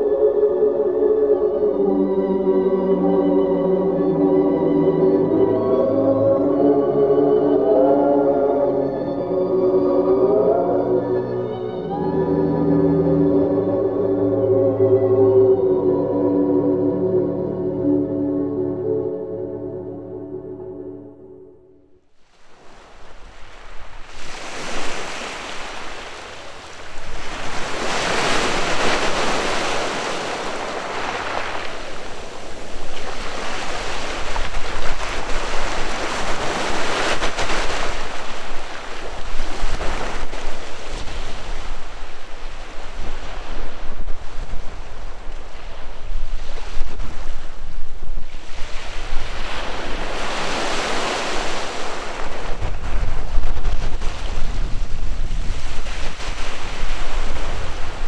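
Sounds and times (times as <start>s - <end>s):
waves breaking on pebble beach: 22.2s - 58.0s
wind rumbling on microphone: 22.4s - 58.0s.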